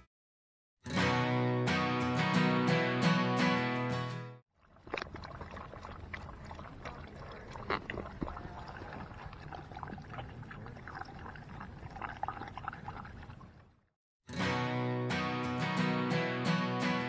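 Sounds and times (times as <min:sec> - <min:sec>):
dogs lapping water from bowl: 0:04.6 - 0:13.8.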